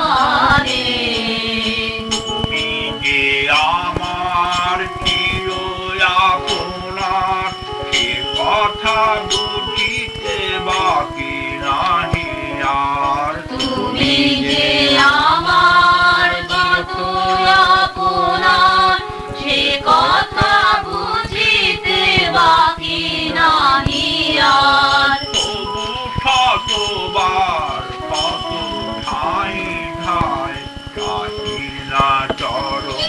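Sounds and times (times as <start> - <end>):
sustained instrumental tones: 0.0 - 33.0
voices singing a chant: 0.0 - 33.0.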